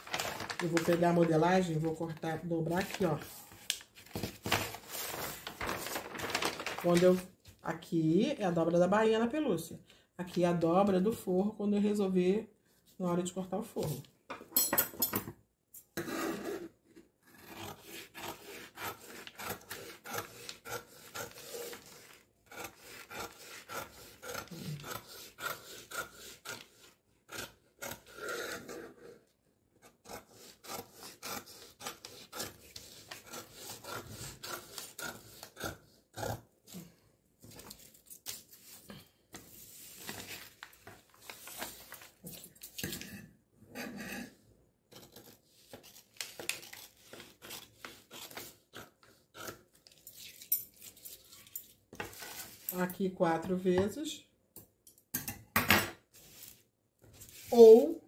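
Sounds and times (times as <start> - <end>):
scissors cutting paper: 0.0 - 7.3, 17.3 - 29.2, 30.0 - 36.4, 44.9 - 52.8.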